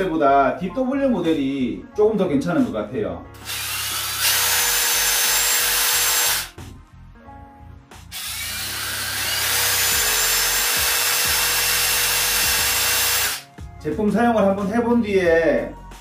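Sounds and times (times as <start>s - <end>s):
cordless drills whining: 3.4s - 6.5s, 8.1s - 13.4s.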